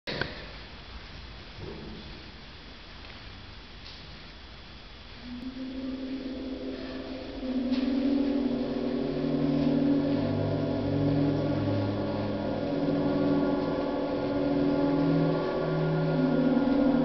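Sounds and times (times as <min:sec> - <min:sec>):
concert band playing held chords: 0:05.2 - 0:17.0.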